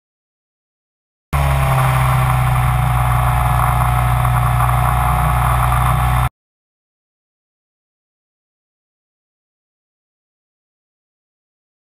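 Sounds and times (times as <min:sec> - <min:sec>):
drone motors buzzing: 0:01.4 - 0:06.3.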